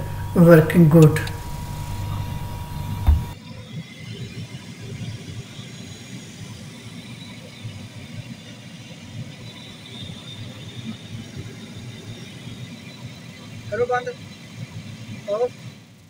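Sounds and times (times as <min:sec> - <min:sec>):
air hissing: 0:00.0 - 0:03.4
blower motor rumbling: 0:00.0 - 0:03.4.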